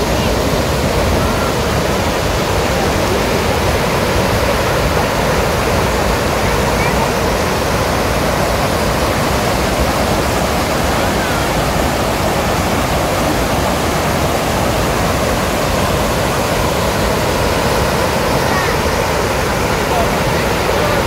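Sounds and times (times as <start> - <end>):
stream water rushing over stones: 0.0 - 21.0.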